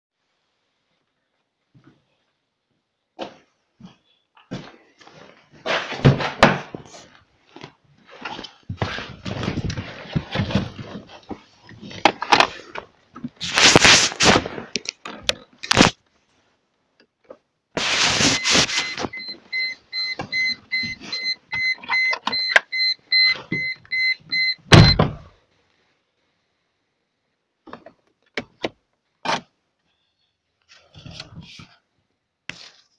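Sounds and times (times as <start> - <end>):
phone being handled: 17.8 - 19.6
car warning chime beeping: 18.4 - 25.0.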